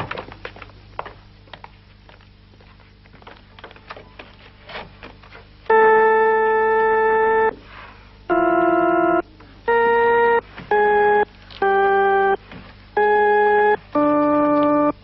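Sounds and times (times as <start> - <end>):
pipe organ notes: 5.7 - 7.6, 8.2 - 15.0.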